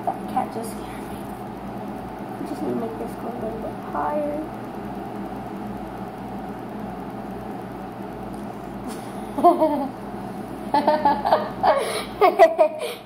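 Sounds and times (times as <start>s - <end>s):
background hum: 0.0s - 13.0s.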